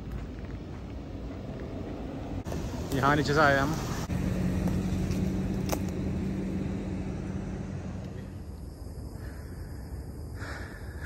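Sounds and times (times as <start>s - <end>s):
vehicle motor humming past: 1.3s - 8.6s.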